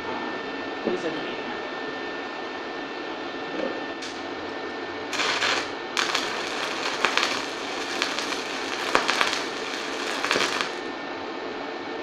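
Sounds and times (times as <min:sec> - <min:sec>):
welding arc crackling: 0:05.1 - 0:10.9.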